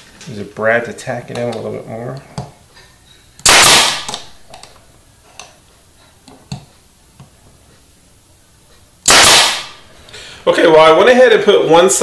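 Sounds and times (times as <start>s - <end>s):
nail gun firing: 3.4s - 4.3s, 9.0s - 9.8s.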